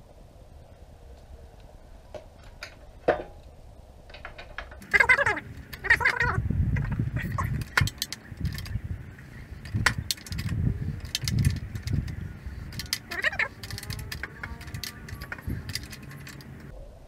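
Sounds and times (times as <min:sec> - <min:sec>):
tool handling thumps and rustling: 0:03.0 - 0:03.4
socket wrench clicking on metal: 0:06.8 - 0:08.8, 0:09.6 - 0:16.7.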